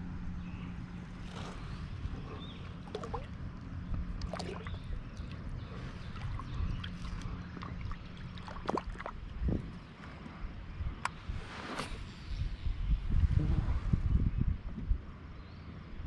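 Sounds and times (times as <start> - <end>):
water lapping against kayak hull: 1.0 - 10.5
small splashes: 1.2 - 3.4, 4.1 - 9.3.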